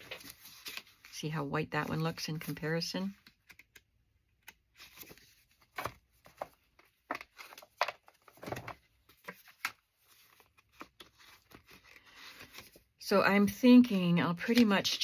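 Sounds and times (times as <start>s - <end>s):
paper cards rustling: 0.0s - 12.9s.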